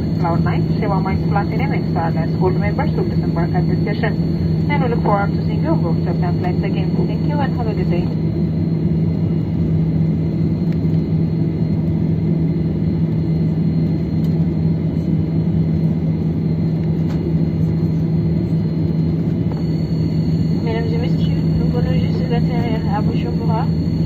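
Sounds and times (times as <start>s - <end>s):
airliner cabin rumble: 0.0s - 24.0s.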